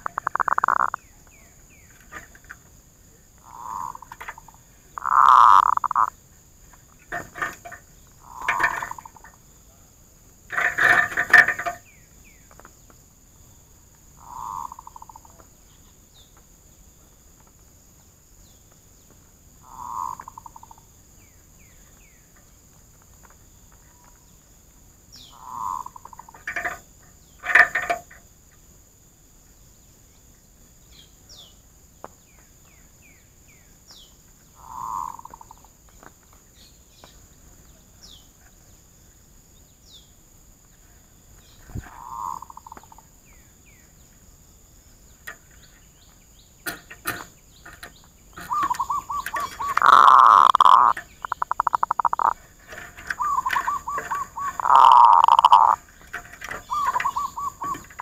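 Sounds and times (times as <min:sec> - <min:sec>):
doves cooing: 0:00.0 - 0:01.0, 0:03.4 - 0:06.1, 0:07.1 - 0:09.4, 0:14.2 - 0:15.4, 0:19.6 - 0:20.8, 0:25.3 - 0:26.8, 0:34.6 - 0:35.7, 0:41.7 - 0:43.1, 0:46.6 - 0:58.0
small birds chirping: 0:00.0 - 0:27.9, 0:29.4 - 0:58.0.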